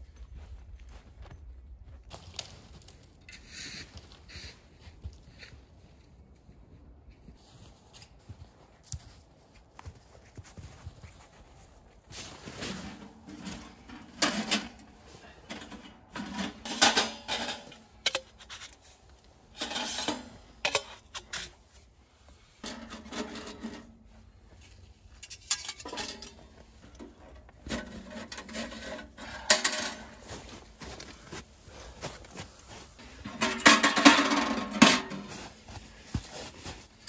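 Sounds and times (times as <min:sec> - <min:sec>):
sheet metal clanks and rattles: 0:13.0 - 0:18.3, 0:25.2 - 0:30.2, 0:33.2 - 0:35.4.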